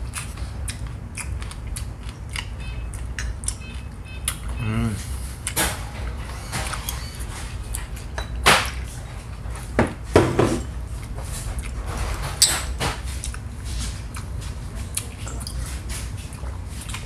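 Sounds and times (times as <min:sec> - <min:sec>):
glass knocking on wooden table: 0:09.8 - 0:10.7.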